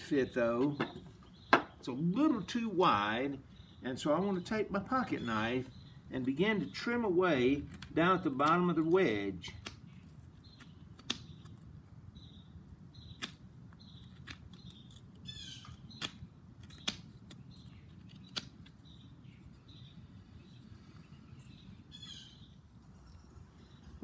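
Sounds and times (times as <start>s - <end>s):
birds chirping: 0.0s - 24.0s
sharp blade clicks: 14.1s - 18.8s.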